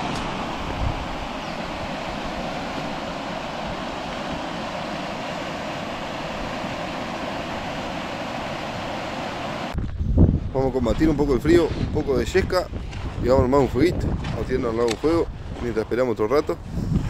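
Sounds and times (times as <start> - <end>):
river rushing over rapids: 0.0 - 9.8.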